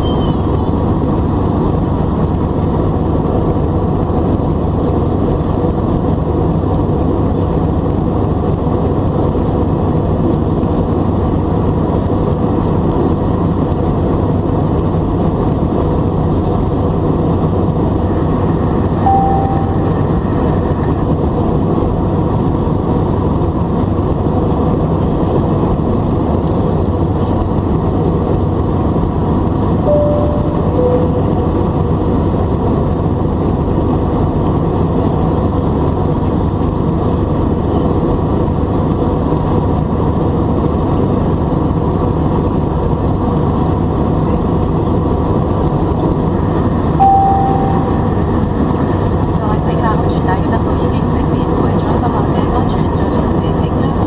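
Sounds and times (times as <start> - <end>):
jet engines in cabin: 0.0 - 54.0
short single tone: 19.0 - 20.4, 29.8 - 31.7, 47.0 - 48.4.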